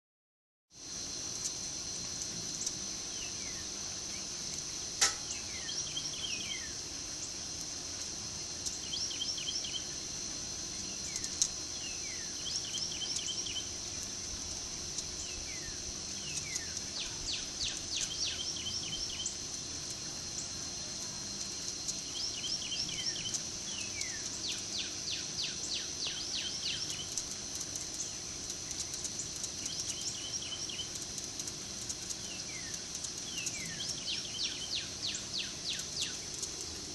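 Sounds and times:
high-pitched insect drone: 0:00.8 - 0:36.9
birds chirping and whistling: 0:05.1 - 0:07.4, 0:08.6 - 0:10.0, 0:10.8 - 0:14.0, 0:15.2 - 0:19.5, 0:21.9 - 0:36.6.

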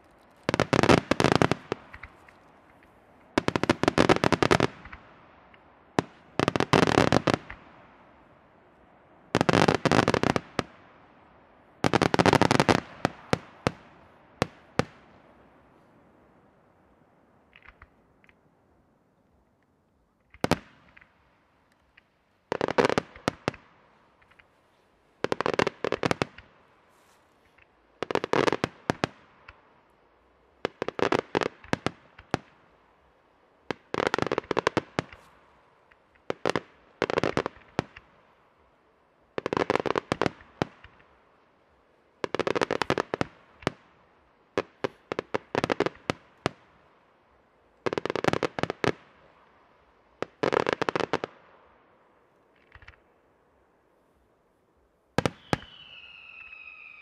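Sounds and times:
fireworks bursting: 0:00.0 - 0:08.1, 0:09.3 - 0:10.8, 0:11.8 - 0:15.5, 0:20.3 - 0:29.7, 0:30.3 - 0:38.3, 0:39.3 - 0:46.7, 0:50.2 - 0:51.8, 0:55.2 - 0:57.0.

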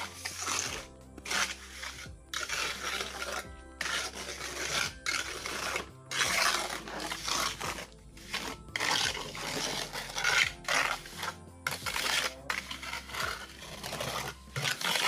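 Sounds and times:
trowel scraping wet cement: 0:00.0 - 0:15.0.

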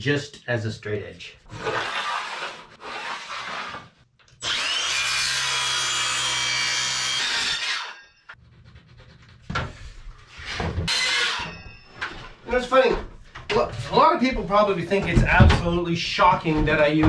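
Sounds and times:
circular saw cutting plywood: 0:01.5 - 0:08.4, 0:10.9 - 0:11.8.

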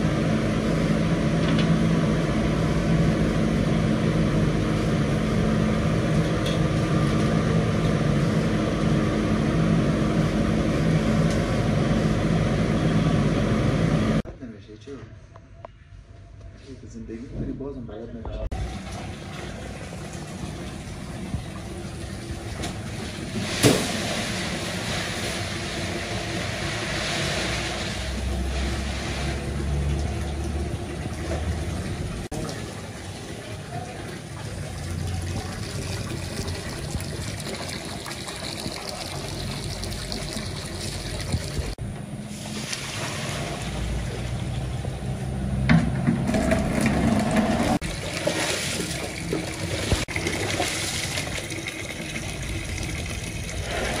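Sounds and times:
water running into basin: 0:18.5 - 0:41.8, 0:47.6 - 0:54.0.

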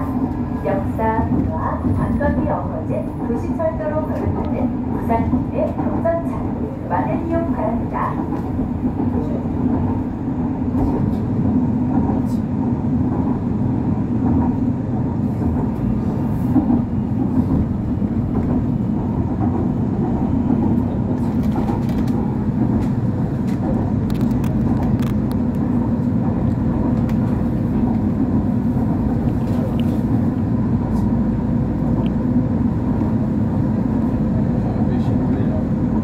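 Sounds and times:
train wheels rumbling on rail: 0:00.0 - 0:36.0.

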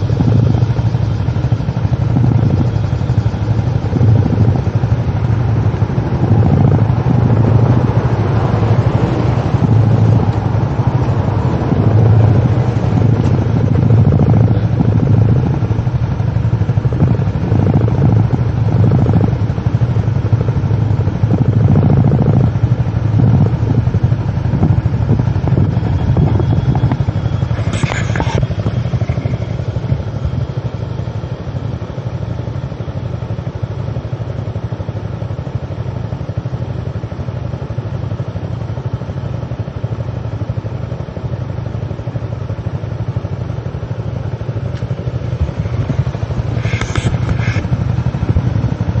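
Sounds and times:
wind buffeting microphone: 0:00.0 - 0:30.5, 0:45.0 - 0:49.0
scooter engine riding: 0:00.0 - 0:49.0.

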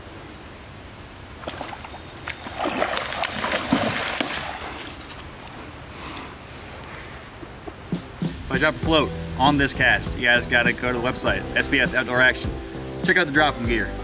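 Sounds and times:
fish splashing in water: 0:01.4 - 0:05.6.

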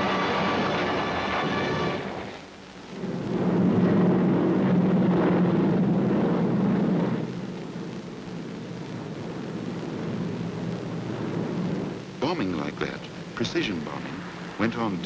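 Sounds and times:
piston-engine bombers droning overhead: 0:00.0 - 0:07.7.

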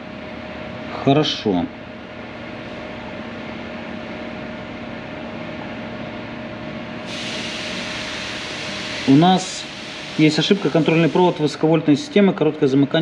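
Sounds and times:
mechanical hum with faint tone: 0:00.0 - 0:13.0
rushing hiss: 0:07.0 - 0:11.8.

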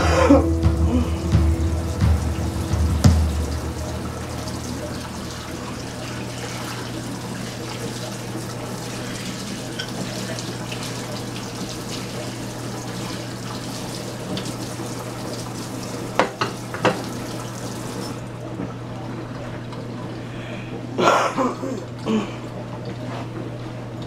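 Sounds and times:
faucet running into metal sink: 0:00.0 - 0:18.4
sharp knocks: 0:00.5 - 0:05.4.

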